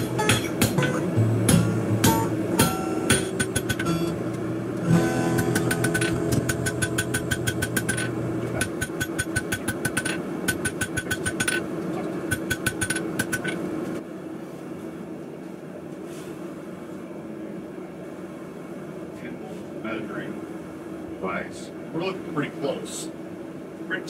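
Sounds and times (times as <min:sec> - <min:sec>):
steady hum: 0:00.0 - 0:24.0
hammer ringing on anvil: 0:05.4 - 0:11.6.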